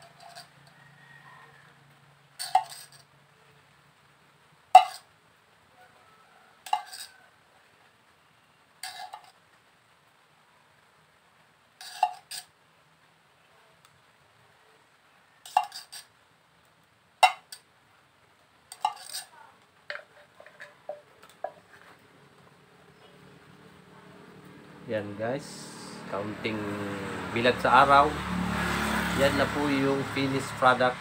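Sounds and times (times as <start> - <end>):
tin can clinks and knocks: 2.4 - 3.0, 4.8 - 5.0, 15.5 - 16.0, 17.2 - 17.6, 18.7 - 19.3.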